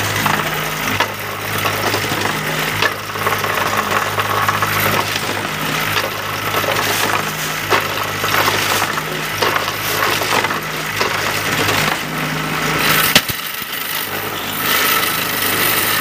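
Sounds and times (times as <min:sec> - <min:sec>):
machine motor humming: 0:00.0 - 0:16.0
concrete scraping in a mould: 0:00.2 - 0:12.1.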